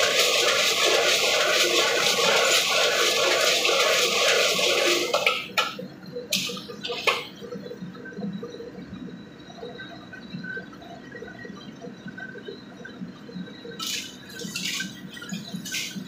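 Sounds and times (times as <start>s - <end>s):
snails sizzling in a wok: 0.0s - 5.1s
wok burner roaring: 0.0s - 7.1s
low kitchen background: 0.0s - 7.6s, 13.8s - 16.0s.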